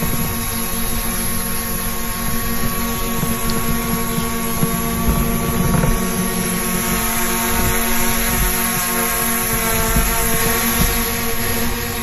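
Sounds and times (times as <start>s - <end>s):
drone propellers whirring: 0.0s - 12.0s.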